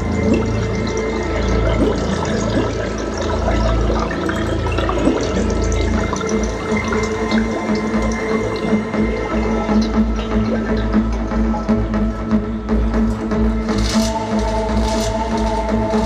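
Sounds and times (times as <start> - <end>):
rushing water-like noise: 0.0 - 11.3.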